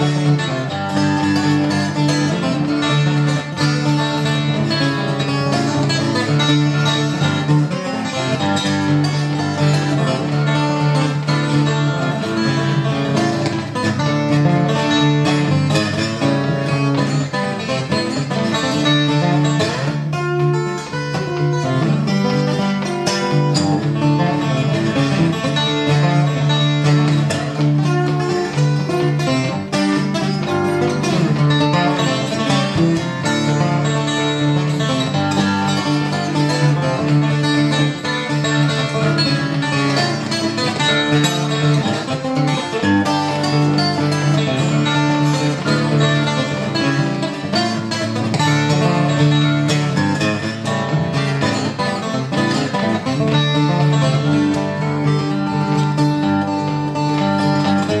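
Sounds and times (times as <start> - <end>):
fingerstyle acoustic guitar: 0.0 - 58.0.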